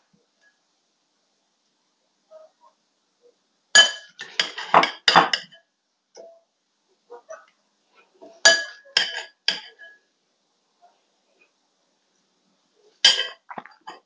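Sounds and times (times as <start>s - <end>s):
metal spoon clinking on glass bowl: 3.8s - 5.6s, 8.5s - 10.0s, 13.1s - 13.4s.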